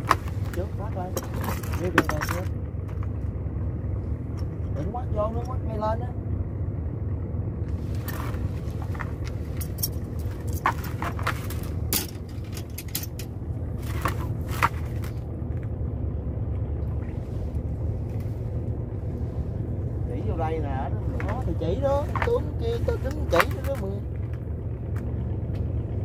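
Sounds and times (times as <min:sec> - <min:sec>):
sharp knocks and scrapes: 0:00.0 - 0:03.2, 0:07.7 - 0:15.3, 0:21.0 - 0:24.4
boat engine droning: 0:00.0 - 0:26.0.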